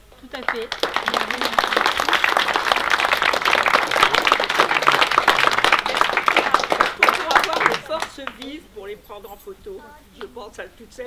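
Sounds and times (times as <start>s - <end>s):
crowd applauding: 0.2s - 8.6s.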